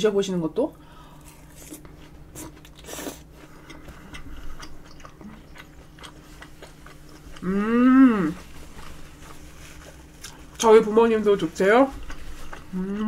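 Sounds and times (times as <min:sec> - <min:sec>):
chewing crunchy food: 0:01.2 - 0:13.0.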